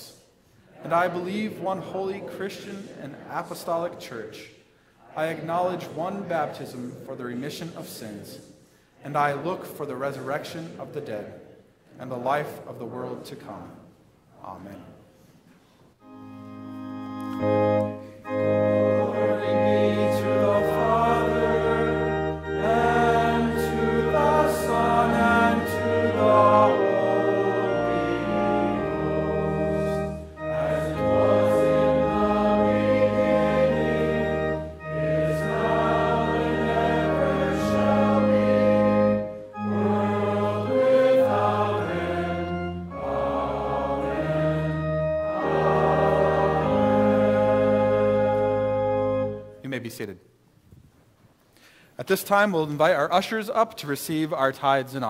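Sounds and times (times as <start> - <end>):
congregation singing a hymn: 0.0 - 13.8, 16.0 - 49.6
organ playing: 16.0 - 50.0.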